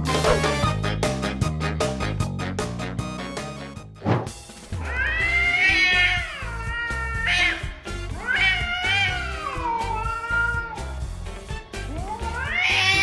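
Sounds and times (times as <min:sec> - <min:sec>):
background music: 0:00.0 - 0:13.0
cat yowling angrily: 0:04.8 - 0:10.9, 0:11.9 - 0:13.0.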